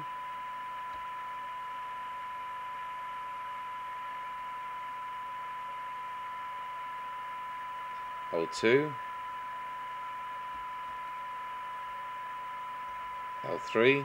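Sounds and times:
radio receiver hiss: 0:00.0 - 0:01.9, 0:07.4 - 0:14.0
steady test tone: 0:00.0 - 0:14.0.

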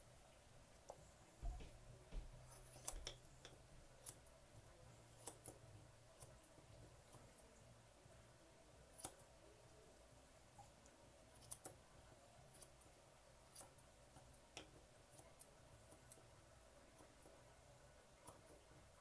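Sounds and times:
grooming shears snipping hair: 0:01.6 - 0:04.4.

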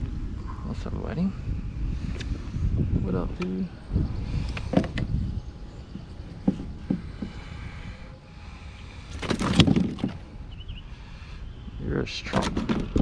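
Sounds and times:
fish flapping against hull: 0:09.1 - 0:10.3.

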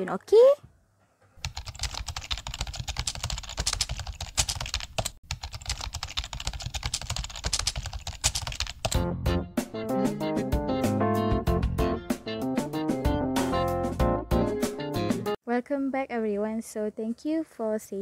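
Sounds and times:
rapid keyboard typing: 0:01.4 - 0:09.0.

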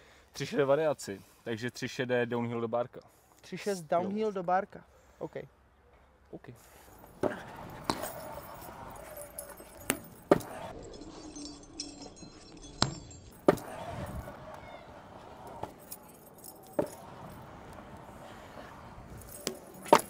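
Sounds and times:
scooter wheels rolling on concrete: 0:06.8 - 0:20.0
metallic scooter rattling: 0:07.1 - 0:20.0.

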